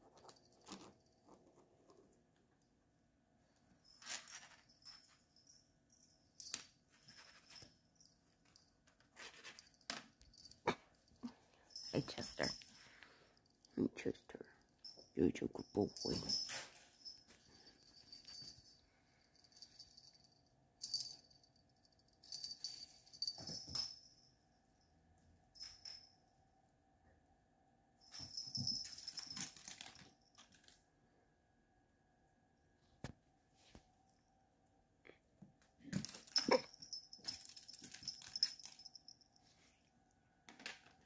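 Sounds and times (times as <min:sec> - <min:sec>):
cat toy rattling: 0:28.2 - 0:30.8.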